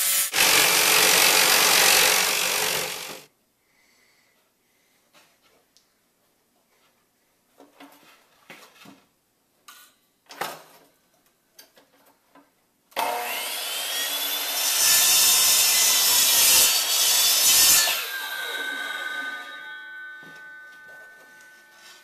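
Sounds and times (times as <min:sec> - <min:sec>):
miter saw cutting wood: 0:00.0 - 0:03.3, 0:13.0 - 0:20.6.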